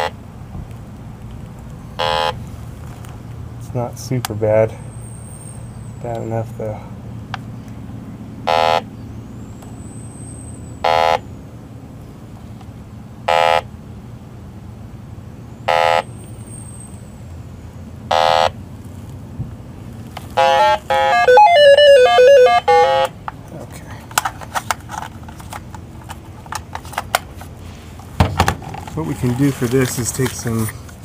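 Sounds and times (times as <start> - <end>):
leak detector beeping: 2.0 - 2.4, 8.5 - 8.9, 10.8 - 11.2, 13.3 - 13.7, 15.7 - 16.2, 18.1 - 18.6, 20.4 - 23.2.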